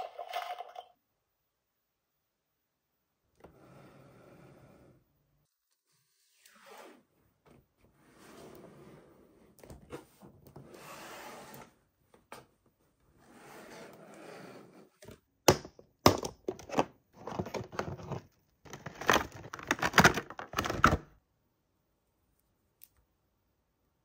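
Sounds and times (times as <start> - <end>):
plastic parts clicking and knocking: 15.5 - 21.2
plastic packaging scraping: 16.7 - 21.0.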